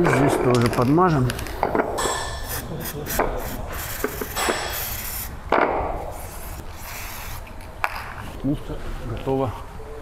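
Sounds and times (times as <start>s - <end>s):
gloved hands rubbing metal: 2.3s - 5.4s, 6.0s - 7.6s.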